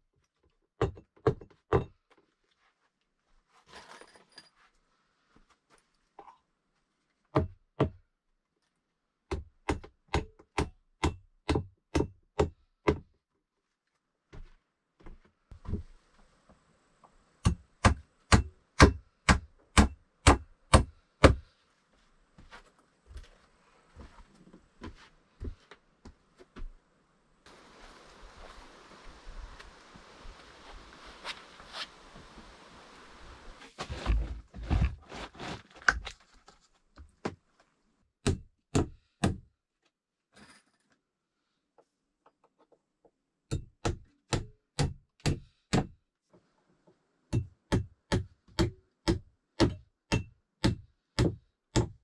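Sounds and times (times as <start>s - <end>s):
hammering on wooden plank: 9.3s - 13.1s, 17.4s - 21.4s, 38.2s - 39.5s, 43.5s - 46.0s, 47.3s - 52.0s
wood scraping: 33.6s - 36.8s.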